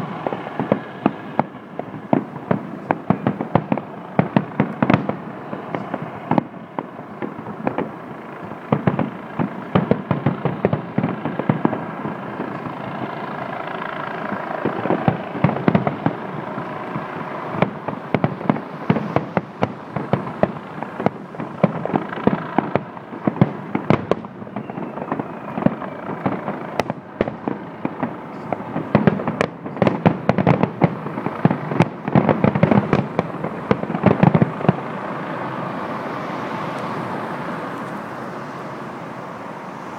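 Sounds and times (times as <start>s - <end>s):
distant fireworks bangs and crackling: 0.0s - 39.9s.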